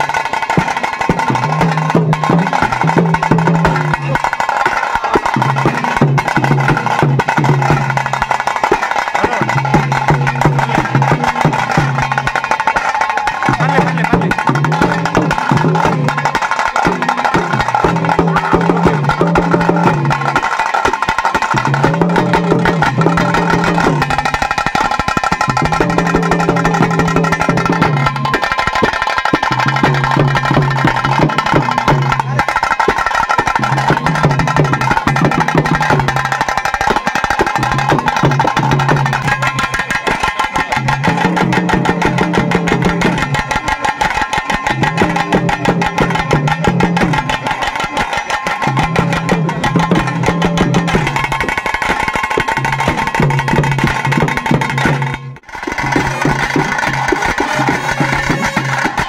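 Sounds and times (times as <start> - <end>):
sticks beating small drums: 0.0 - 59.0
lower pitched drum phrase: 21.3 - 32.5, 44.5 - 47.6.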